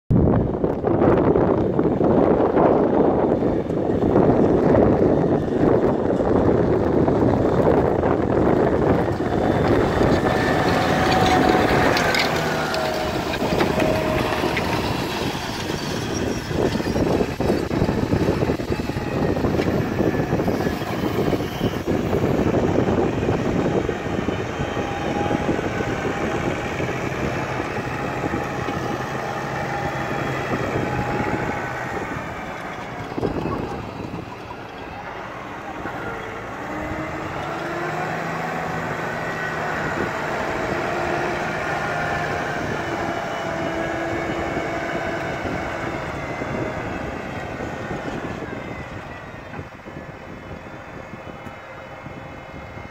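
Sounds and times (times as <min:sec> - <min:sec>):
tractor diesel engine under load: 0:00.1 - 0:52.9.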